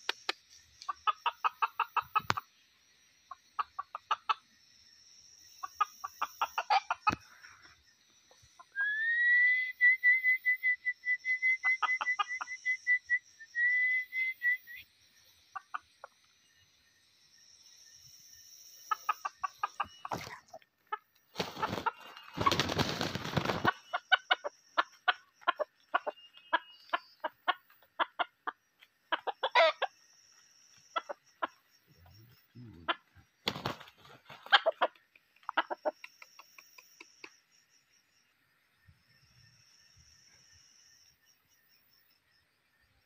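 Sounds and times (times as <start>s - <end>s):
roosters clucking: 0.0s - 8.7s, 14.8s - 16.7s, 18.7s - 37.5s
wing flapping: 21.3s - 25.1s, 33.4s - 35.0s.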